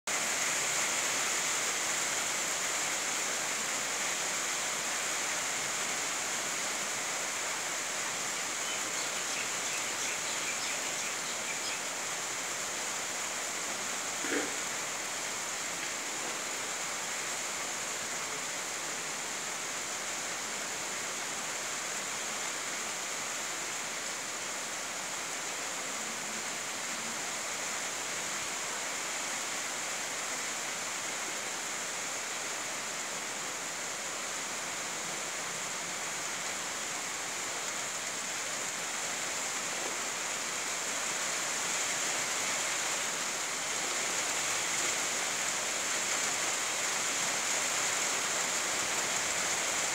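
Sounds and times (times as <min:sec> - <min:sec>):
steady rainfall: 0:00.0 - 0:49.9.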